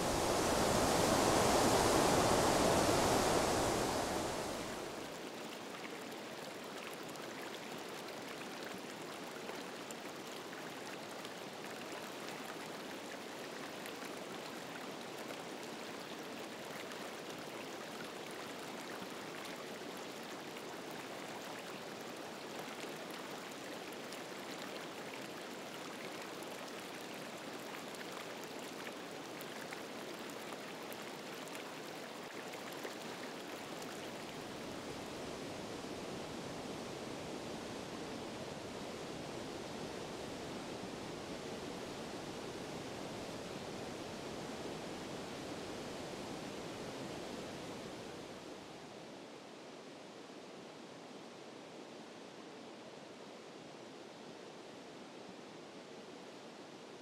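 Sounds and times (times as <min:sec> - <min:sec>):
stream rushing: 0:00.0 - 0:09.1, 0:14.2 - 0:44.4.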